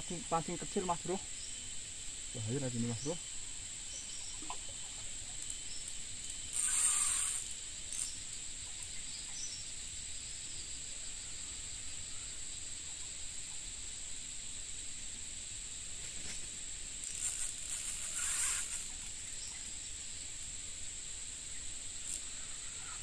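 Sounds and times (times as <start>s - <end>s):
insects chirring: 0.0s - 23.0s
brief hissing burst: 6.5s - 8.1s, 17.0s - 19.1s.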